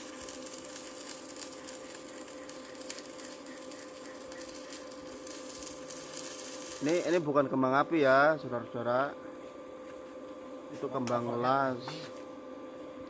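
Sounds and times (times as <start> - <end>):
faint steady hum: 0.0 - 13.0
welding arc crackling and sizzling: 0.0 - 13.0.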